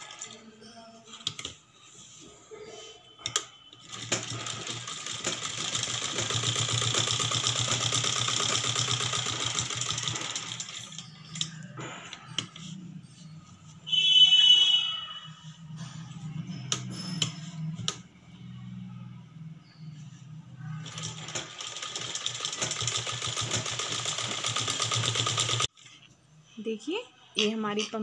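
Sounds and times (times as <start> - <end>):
sewing machine stitching: 3.2 - 11.0, 20.8 - 25.7
loud shrill tone: 13.8 - 15.6.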